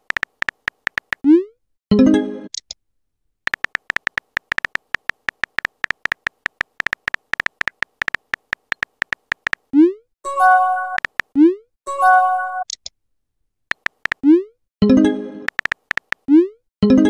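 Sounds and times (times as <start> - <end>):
electronic key-tap clicks: 0.0 - 1.3, 3.5 - 9.7, 10.9 - 11.4, 13.7 - 14.3, 15.5 - 16.3.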